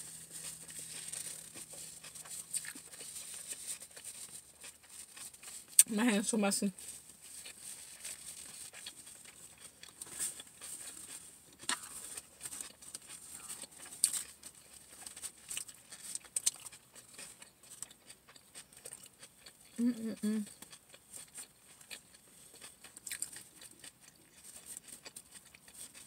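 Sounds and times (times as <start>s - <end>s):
soft chewing: 0.0s - 26.0s.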